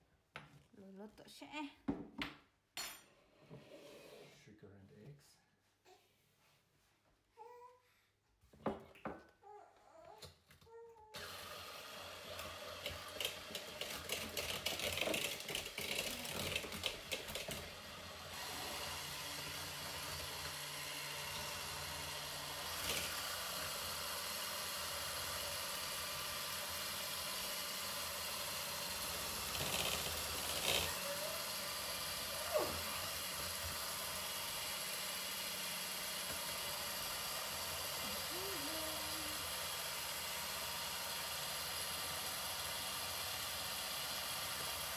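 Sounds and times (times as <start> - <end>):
electric hand mixer running: 11.2 - 44.9.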